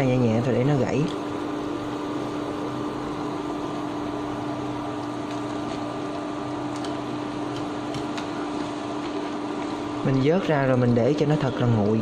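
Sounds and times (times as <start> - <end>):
steady hum: 0.0 - 12.0.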